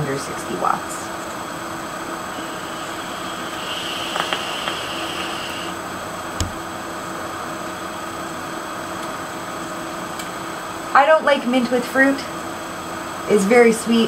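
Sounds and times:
steady background hiss: 0:00.0 - 0:08.7.

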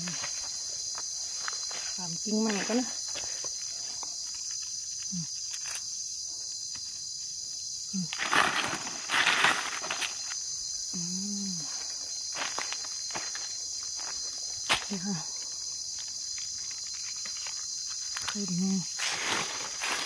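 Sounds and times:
insects chorus: 0:00.0 - 0:20.0
hand digging in soil and leaves: 0:08.0 - 0:10.4.

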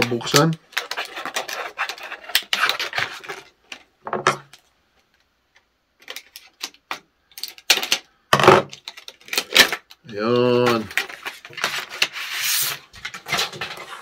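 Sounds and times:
plastic packaging crackling: 0:08.7 - 0:14.0.

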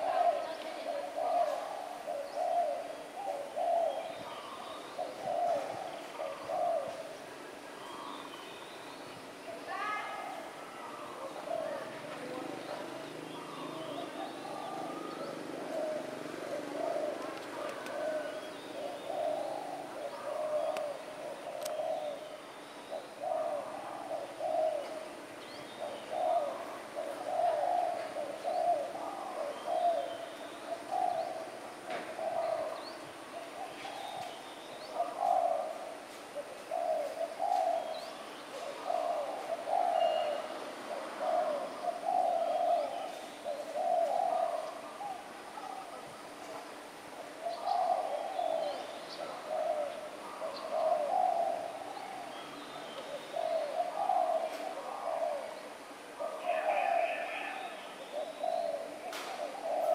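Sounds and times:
faint small birds chirping: 0:00.0 - 0:40.7
doves cooing: 0:00.0 - 0:59.9.

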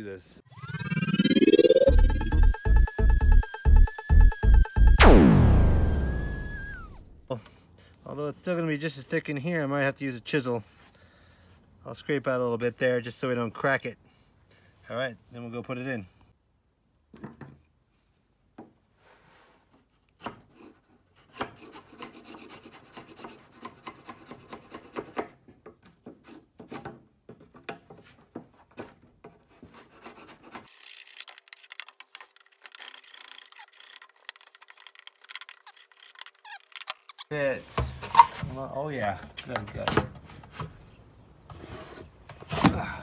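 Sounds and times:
wood chisel scraping wood: 0:19.7 - 0:37.3.

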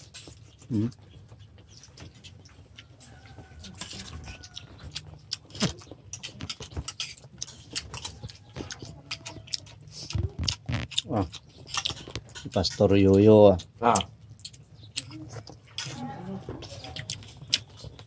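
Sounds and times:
chewing: 0:00.0 - 0:18.0.

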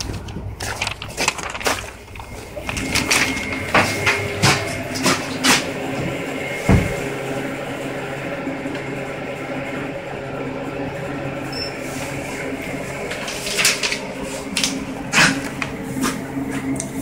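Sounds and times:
cash dispenser whirring: 0:00.0 - 0:17.0
machine humming: 0:00.0 - 0:17.0.

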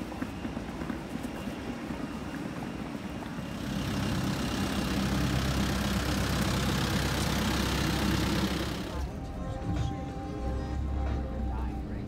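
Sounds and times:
suitcase wheels rolling on paving: 0:00.0 - 0:09.2
minibus engine idling: 0:02.5 - 0:12.0.

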